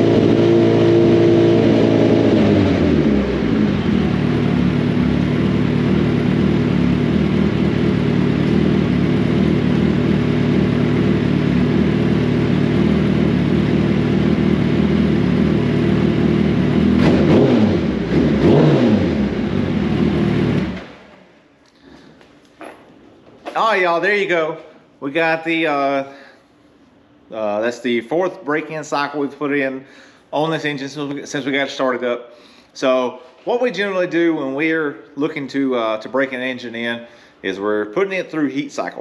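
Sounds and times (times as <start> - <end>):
motorcycle engine running: 0.0 - 20.9
motorcycle engine revving: 0.0 - 21.1.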